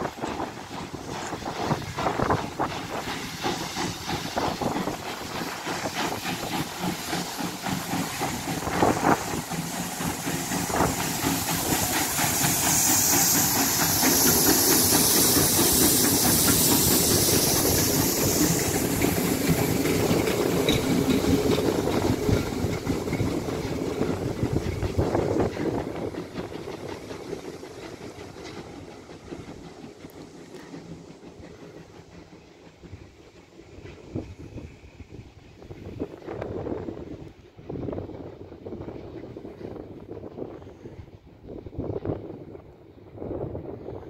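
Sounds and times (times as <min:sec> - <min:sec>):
wheels clattering on rails: 0:00.0 - 0:34.7
steam locomotive hissing: 0:00.0 - 0:44.0.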